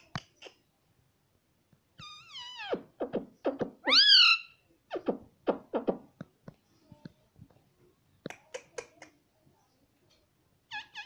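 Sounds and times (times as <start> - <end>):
parakeet squawk: 2.0 - 5.0.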